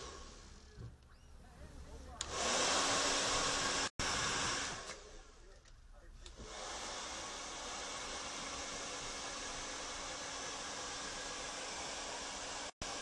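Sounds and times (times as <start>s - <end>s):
hair dryer blowing: 0.0s - 0.4s, 2.2s - 5.3s, 6.3s - 13.0s.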